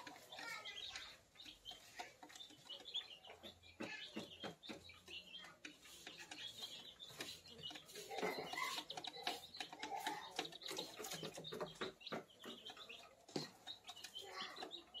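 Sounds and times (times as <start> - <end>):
beaks pecking at feeder: 0.0 - 15.0
chicks peeping and clucking: 0.0 - 15.0.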